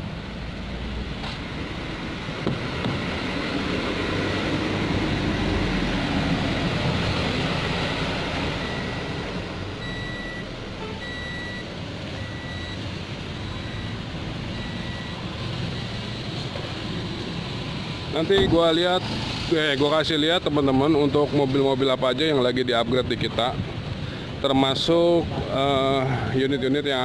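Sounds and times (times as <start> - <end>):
traffic rumble: 0.0 - 27.0
high electronic beep: 8.6 - 9.2, 9.8 - 16.2.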